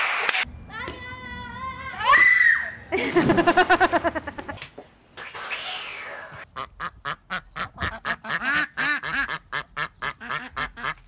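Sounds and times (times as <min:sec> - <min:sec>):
duck quacking: 0:06.5 - 0:11.0.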